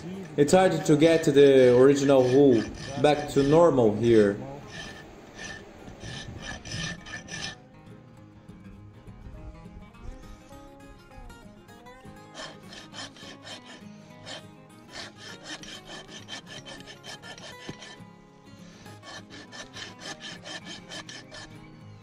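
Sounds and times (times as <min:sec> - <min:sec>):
rasp filing a hoof: 0:00.5 - 0:07.6, 0:12.0 - 0:22.0.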